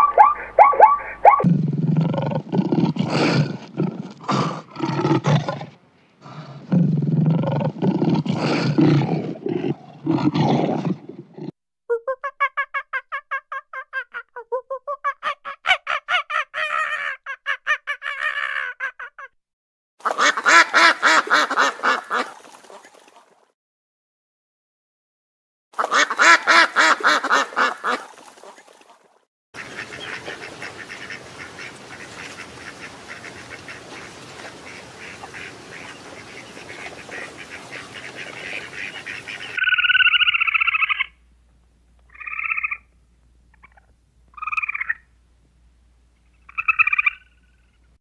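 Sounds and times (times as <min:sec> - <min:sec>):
ducks honking: 0:00.0 - 0:01.5, 0:25.8 - 0:28.1, 0:29.6 - 0:41.1
choppy noisy animal call: 0:00.0 - 0:02.4
rapid pitched animal calls: 0:00.0 - 0:02.5, 0:34.7 - 0:41.2, 0:46.4 - 0:47.8.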